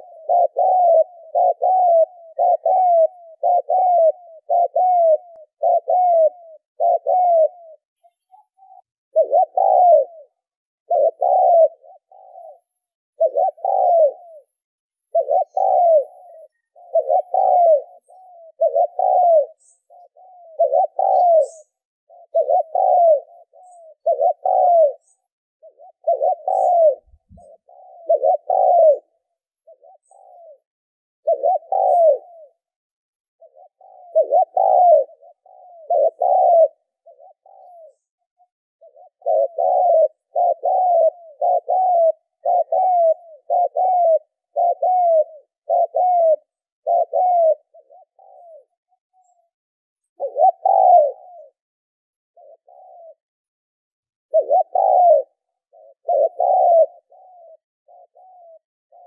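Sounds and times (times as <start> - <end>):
dove cooing: 0.0 - 53.5, 54.1 - 59.0
faint high bird chirps: 7.7 - 32.8.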